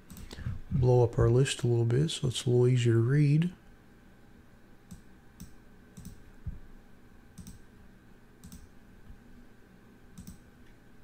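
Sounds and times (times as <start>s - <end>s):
faint computer mouse clicks: 4.9s - 6.2s, 7.4s - 7.6s, 8.4s - 8.7s, 10.2s - 10.5s.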